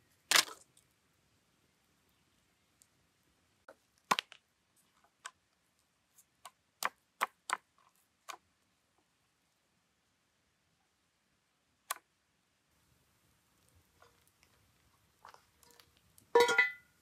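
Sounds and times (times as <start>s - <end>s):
wood fire crackling: 12.8s - 17.0s.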